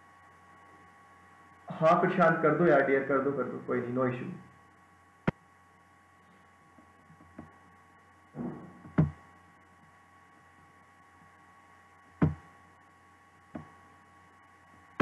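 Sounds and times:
faint electrical hum: 0.0s - 15.0s
sharp knocks with thuds: 8.4s - 9.2s, 12.2s - 12.5s.

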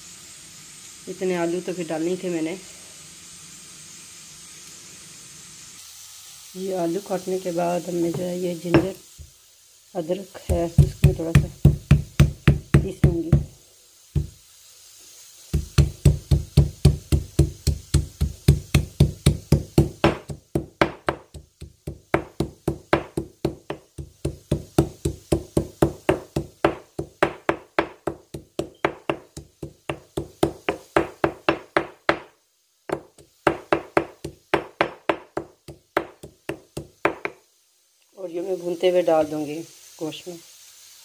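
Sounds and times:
pestle pounding in mortar: 10.5s - 13.5s, 15.5s - 32.3s, 32.9s - 37.4s.

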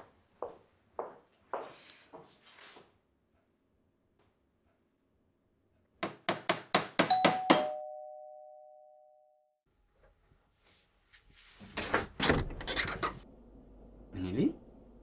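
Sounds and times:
two-note doorbell chime: 7.1s - 9.5s
door opening clatter: 11.7s - 13.2s.

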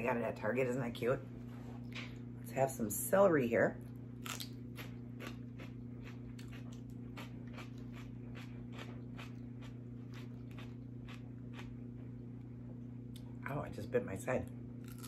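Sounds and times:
low electrical hum: 0.0s - 15.0s
celery crunching: 4.2s - 12.2s.

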